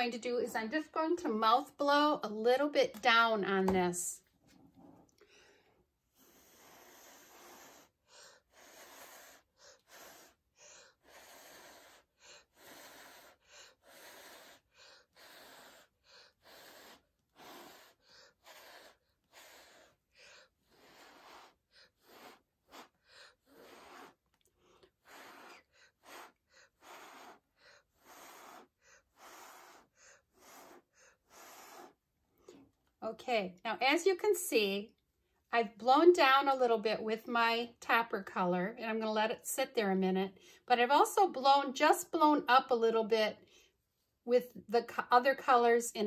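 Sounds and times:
short puffs of breath: 5.2s - 32.7s.

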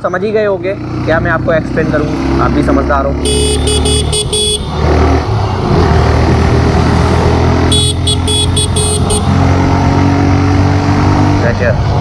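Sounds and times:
vehicle horn beeps: 3.2s - 4.8s, 7.7s - 9.3s.

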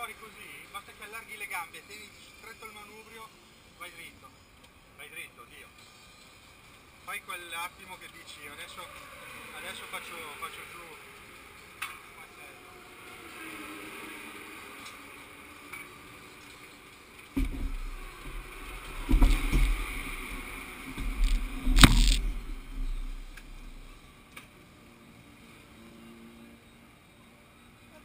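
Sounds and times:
deep rumbling and bumping: 17.4s - 23.9s
loud knocks: 21.0s - 23.2s.

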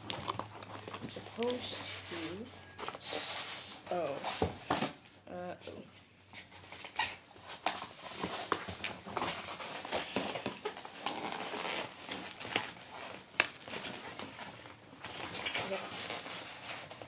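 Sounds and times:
cardboard ripping and rustling: 6.4s - 17.0s.

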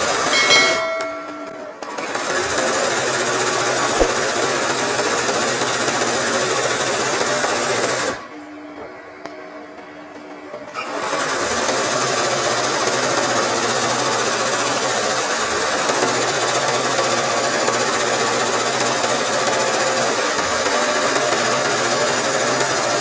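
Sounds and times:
sewing machine running fast: 10.8s - 23.0s.

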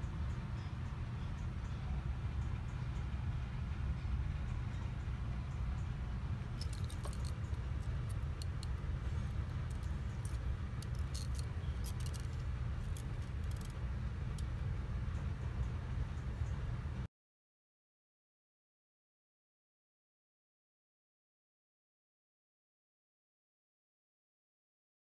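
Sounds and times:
light clicks and rattles: 4.0s - 16.6s.

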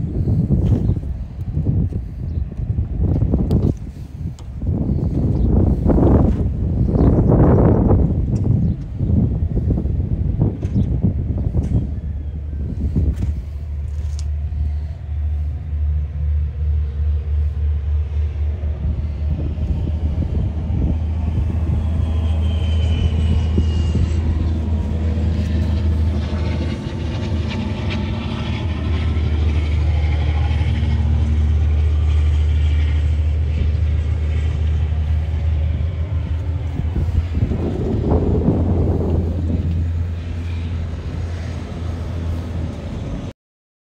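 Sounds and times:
steady low rumble: 0.0s - 43.3s
wind buffeting microphone: 0.0s - 43.3s.

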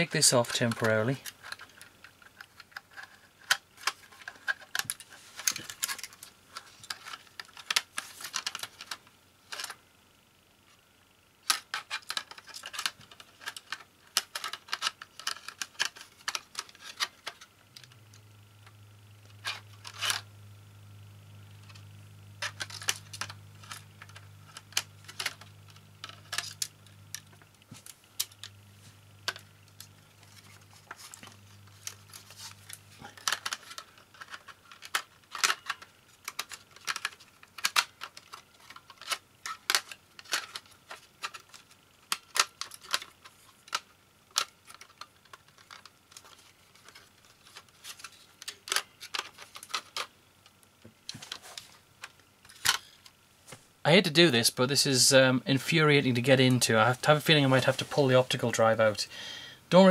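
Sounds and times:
faint low hum: 0.0s - 59.9s
plastic and metal parts clicking: 0.3s - 9.8s, 11.4s - 18.0s, 19.4s - 20.2s, 22.4s - 28.6s, 29.2s - 53.1s.

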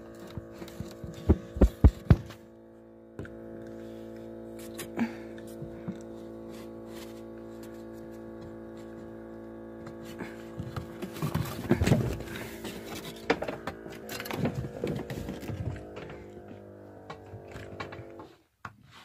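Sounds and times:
steady hum of held tones: 0.0s - 18.3s
knocks scrapes and rustling: 9.9s - 16.3s.

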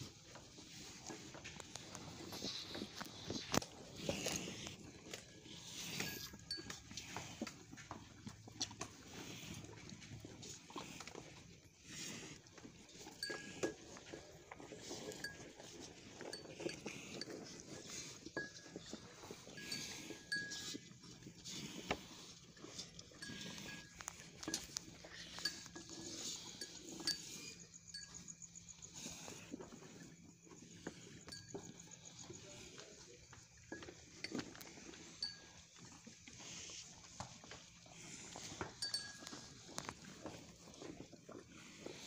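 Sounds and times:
bull eating grain: 0.0s - 42.0s
light metallic clinks: 1.8s - 8.1s, 13.0s - 15.5s, 16.2s - 21.0s, 21.6s - 36.6s, 37.5s - 40.7s.

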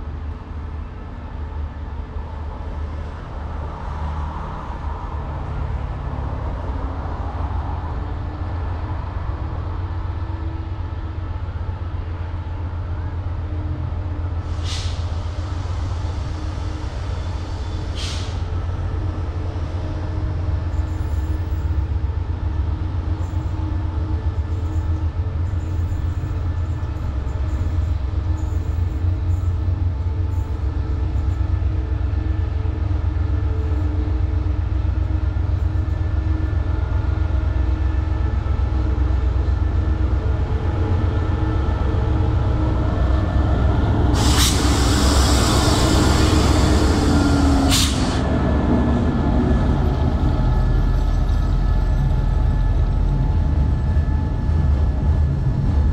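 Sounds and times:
diesel locomotive engine rumbling: 0.0s - 55.9s
short high hisses: 44.2s - 48.2s.

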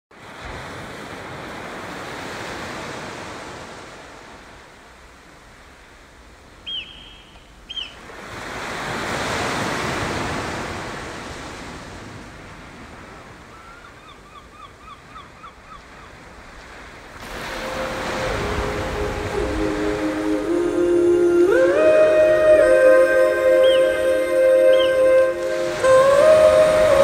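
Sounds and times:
sea waves washing on beach: 0.2s - 13.7s, 15.6s - 27.0s
bird piping notes: 6.6s - 8.0s, 17.4s - 27.0s
bird calling: 6.6s - 8.1s, 13.5s - 16.2s, 17.2s - 27.0s
held music notes: 17.5s - 27.0s.

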